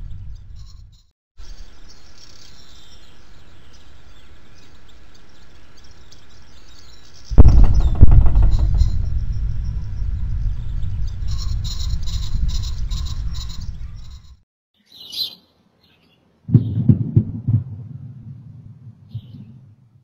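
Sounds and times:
birds chirping: 1.4s - 16.8s
boom thuds: 7.3s - 14.2s
sonic boom deep rumble: 7.3s - 14.4s.

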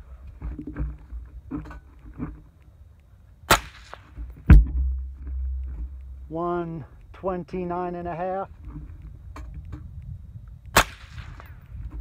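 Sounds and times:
suppressed gunshot: 3.5s - 5.9s, 10.7s - 11.6s.

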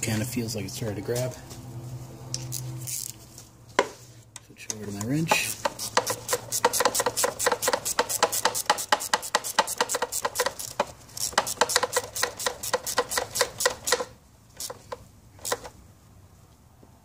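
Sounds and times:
ratcheting wrench clicking: 4.6s - 15.7s.

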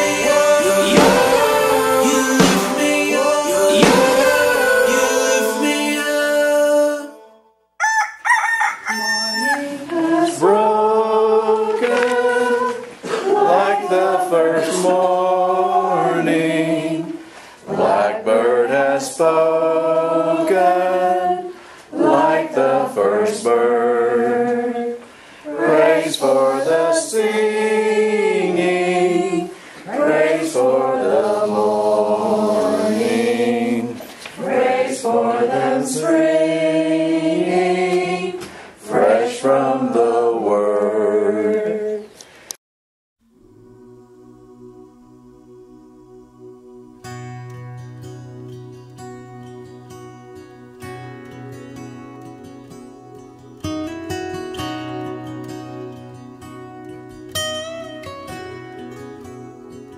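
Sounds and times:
group singing unaccompanied: 0.0s - 7.4s, 9.3s - 42.2s, 43.8s - 47.2s
song playing: 0.0s - 7.5s.

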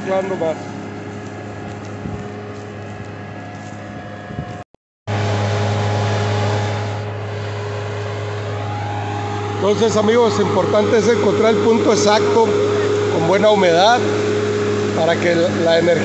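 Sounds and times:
tractor diesel engine under load: 0.0s - 4.3s, 5.1s - 16.0s.

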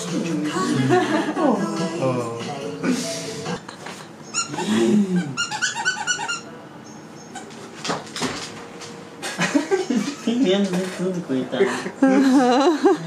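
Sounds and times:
squeaky dog toy squeaking: 4.3s - 6.5s.

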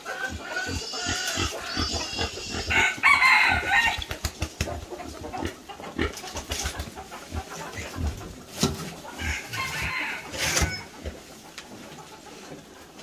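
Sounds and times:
farm animal calls: 0.0s - 13.0s.

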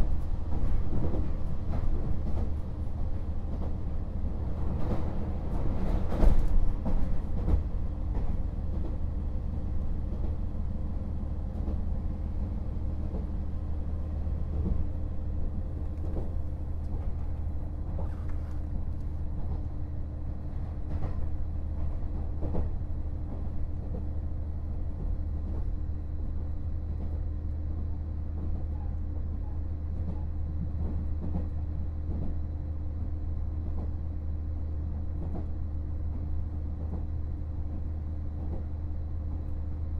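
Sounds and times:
railcar diesel engine drone: 0.0s - 39.9s.

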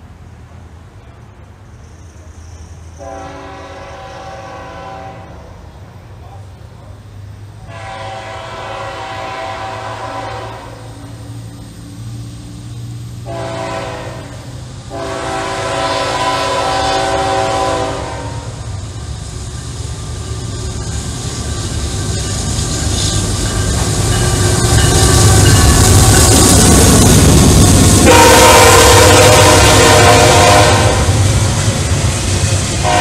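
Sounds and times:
locomotive rumble: 0.0s - 33.0s
locomotive horn chord: 3.0s - 5.4s, 7.7s - 10.9s, 13.2s - 18.6s, 28.0s - 31.2s.

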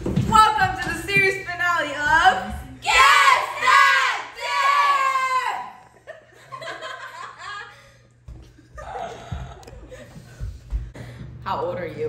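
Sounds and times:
group laughing: 5.7s - 10.5s.

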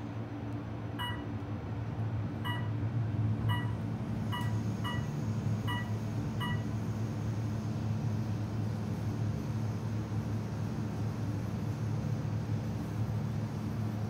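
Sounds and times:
elevator humming: 0.0s - 10.6s
elevator floor beeps: 1.0s - 1.4s, 2.4s - 2.8s, 3.4s - 6.8s.

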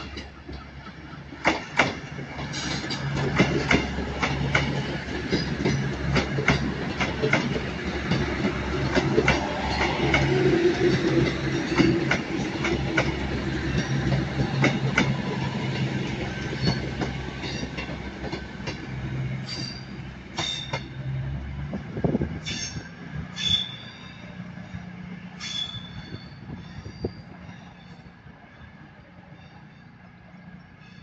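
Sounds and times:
high wheel squeals: 19.4s - 21.0s, 22.4s - 24.4s, 25.4s - 28.2s.

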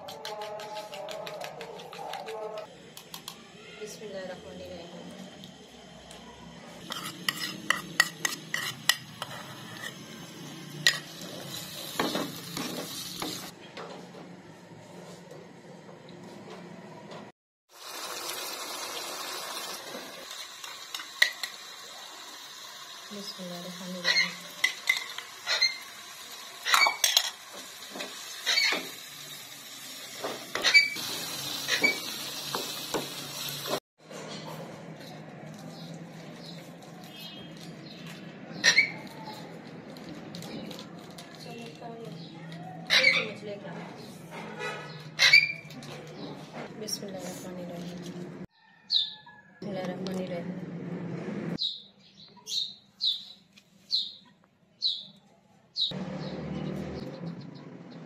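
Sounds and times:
wooden spoon stirring in a pan: 6.8s - 9.9s
pan sizzling: 6.8s - 13.5s, 17.7s - 33.8s.

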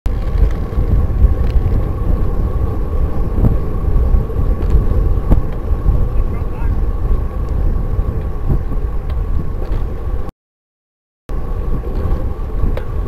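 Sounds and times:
road rumble: 0.1s - 10.3s, 11.3s - 13.0s
wind buffeting: 0.1s - 10.3s, 11.3s - 13.0s.

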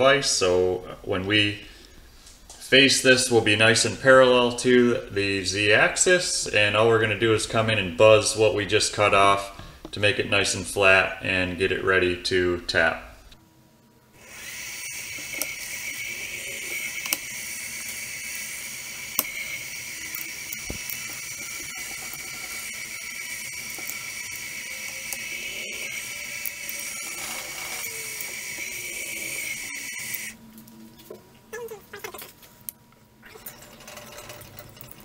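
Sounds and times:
milling machine spindle whine: 14.2s - 30.4s.

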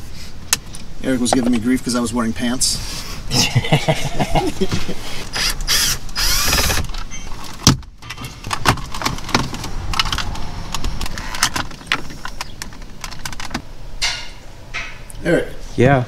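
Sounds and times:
cordless drill whine: 5.3s - 7.3s
sharp knock: 14.0s - 15.1s.

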